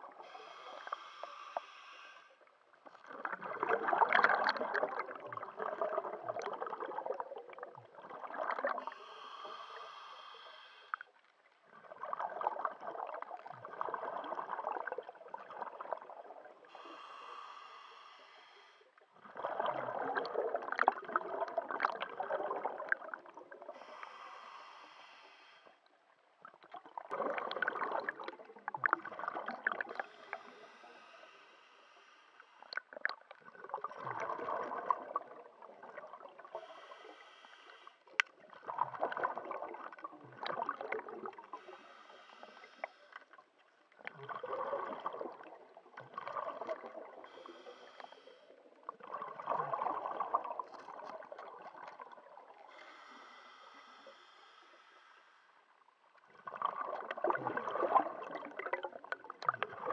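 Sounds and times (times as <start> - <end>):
bubbly underwater exhale: 0.0 - 55.1, 55.7 - 59.9
regulator inhale hiss: 0.1 - 2.6, 8.8 - 11.2, 16.6 - 19.0, 23.6 - 26.0, 29.9 - 32.8, 36.4 - 38.2, 41.4 - 43.4, 47.2 - 48.7, 52.5 - 55.8.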